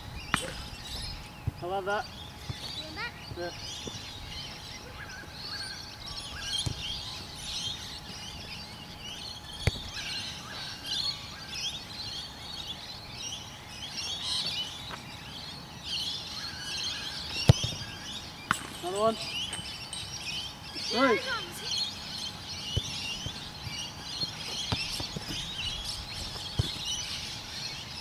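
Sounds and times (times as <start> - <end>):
birds chirping and singing: 0.0 - 28.0
football kicked thud: 6.6 - 7.0, 9.5 - 10.0, 17.4 - 18.7, 26.2 - 27.0.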